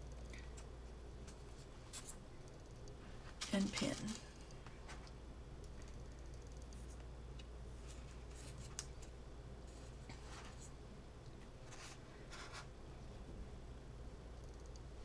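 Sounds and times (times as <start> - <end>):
low steady hum: 0.0 - 15.0
small ticks: 2.0 - 3.0, 4.4 - 7.5, 14.4 - 14.9.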